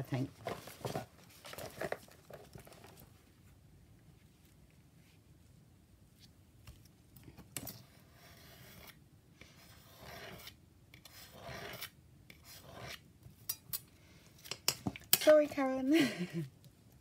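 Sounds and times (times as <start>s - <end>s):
craft knife scraping along ruler: 7.7s - 13.1s.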